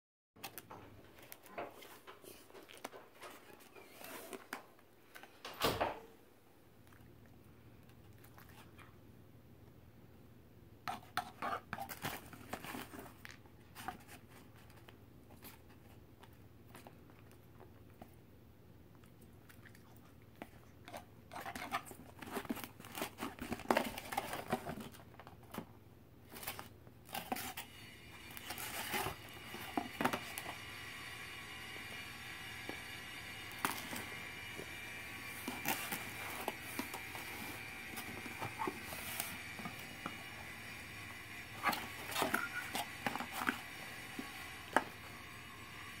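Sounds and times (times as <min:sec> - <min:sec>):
fork scraping foam plate: 0:41.6 - 0:43.6.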